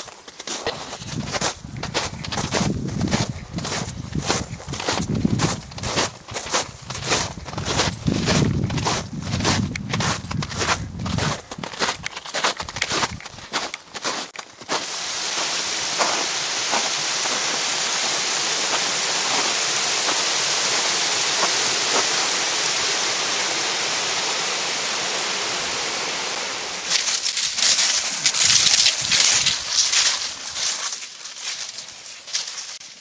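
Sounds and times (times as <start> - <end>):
brook rushing over rocks: 0.9 - 31.1.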